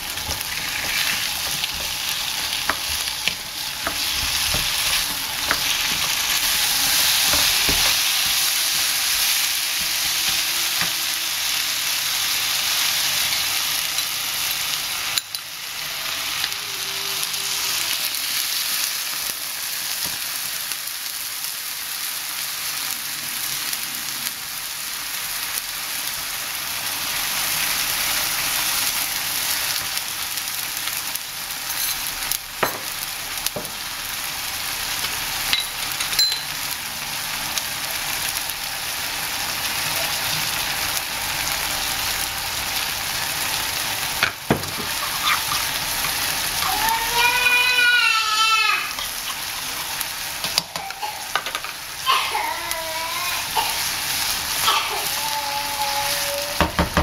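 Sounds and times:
food sizzling and bubbling in wok: 0.0s - 57.0s
baby screaming: 16.4s - 18.3s, 44.7s - 56.9s.

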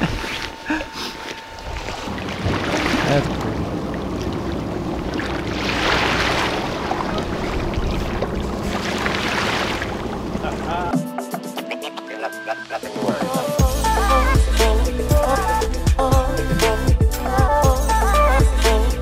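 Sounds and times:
sea water washing against rocks: 1.6s - 10.8s
motorboat engine idling: 6.6s - 10.9s.

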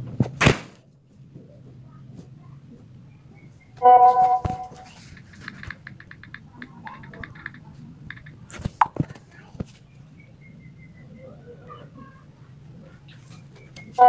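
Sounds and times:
message notification tone: 3.8s - 4.8s
soft keyboard clicks: 4.8s - 8.6s.

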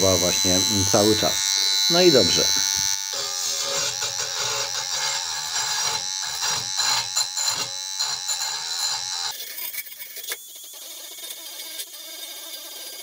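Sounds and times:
grinder motor whine: 0.0s - 9.5s.

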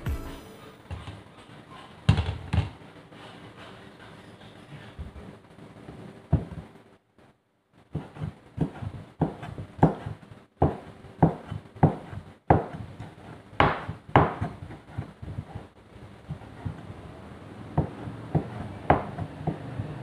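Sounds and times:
cleaver chopping on cutting board: 8.0s - 12.8s, 17.8s - 19.8s.

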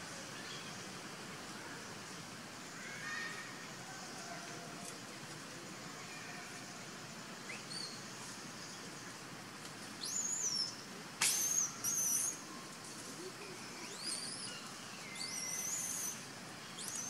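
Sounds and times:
high whistling animal calls: 10.0s - 12.4s, 13.7s - 17.0s.

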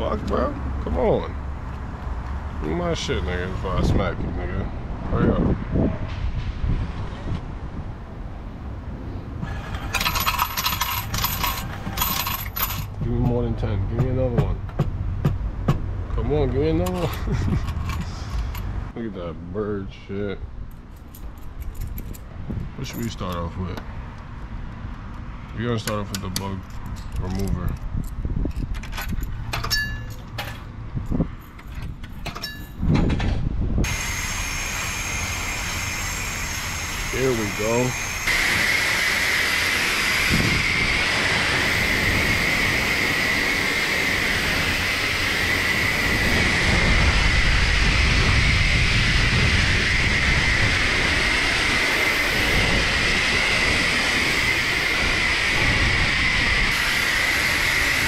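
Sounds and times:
pressure washer spraying: 33.9s - 40.3s, 56.7s - 58.0s.

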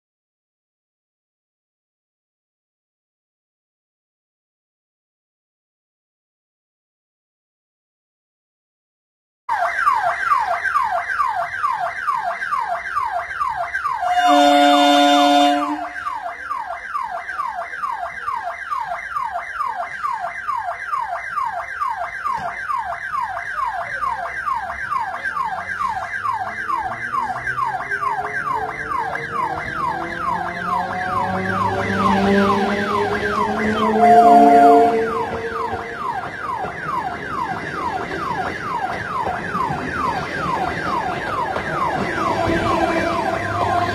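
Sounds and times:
level crossing warning siren: 9.5s - 43.9s
train horn: 14.0s - 16.0s, 29.5s - 35.9s, 42.2s - 43.9s.

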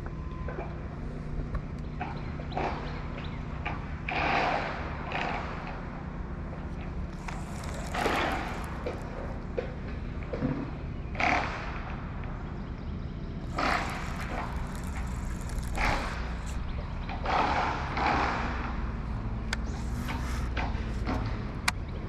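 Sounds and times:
boat motor humming: 6.4s - 10.2s, 13.3s - 17.6s
sharp clicks: 7.1s - 9.3s, 13.5s - 16.8s.

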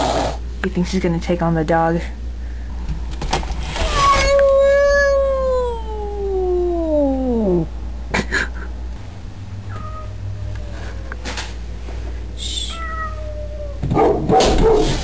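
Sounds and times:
cat yowling: 3.7s - 7.7s, 9.7s - 11.2s, 12.5s - 14.0s.

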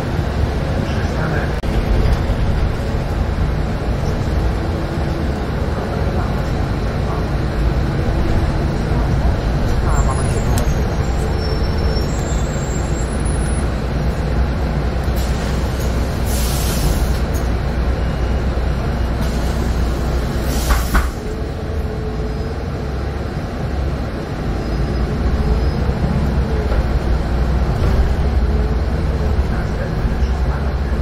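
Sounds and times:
bus diesel engine rumbling: 0.0s - 31.0s
road noise: 0.0s - 31.0s
short air hisses: 16.3s - 17.2s.

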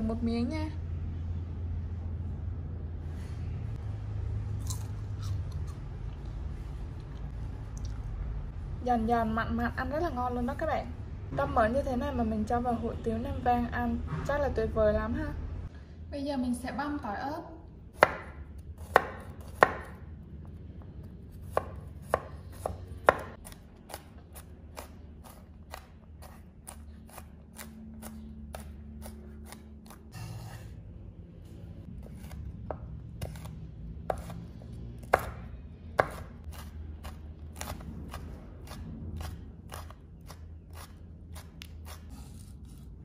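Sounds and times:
knife chopping on wooden board: 18.0s - 20.0s, 21.4s - 30.6s, 32.0s - 34.4s, 35.0s - 42.8s.

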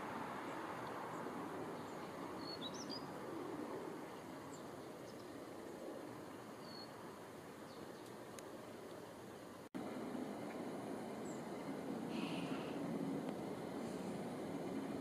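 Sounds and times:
songbird chirps: 0.0s - 9.6s, 10.5s - 12.8s
low background noise: 0.0s - 15.0s.

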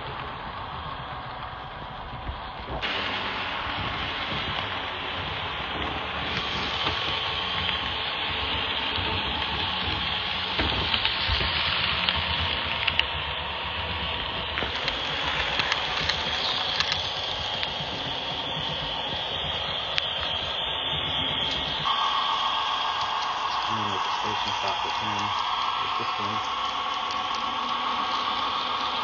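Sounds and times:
model train whirring hiss: 0.0s - 29.0s.

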